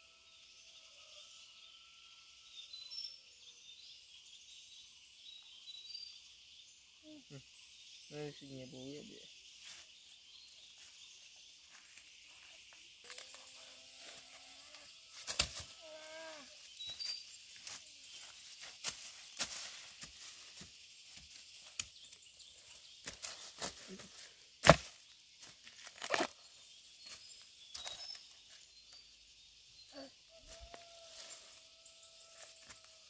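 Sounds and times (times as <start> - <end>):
high insect drone: 6.4 - 33.0.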